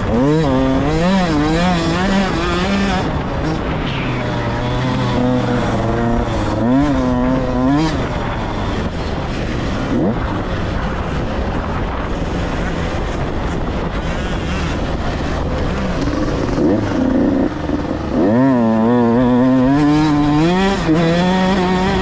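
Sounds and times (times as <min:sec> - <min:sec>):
dirt bike engine revving: 0:00.0 - 0:22.0.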